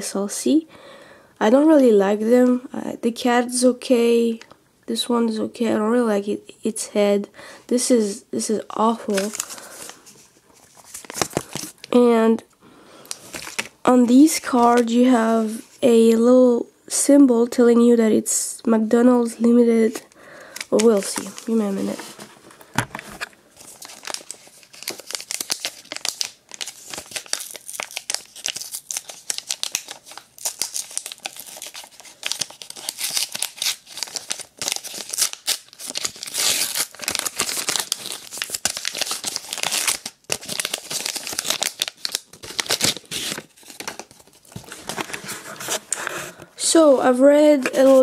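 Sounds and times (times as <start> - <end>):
plastic wrapper tearing and crinkling: 9.0 - 12.0, 13.0 - 13.8, 20.0 - 46.0.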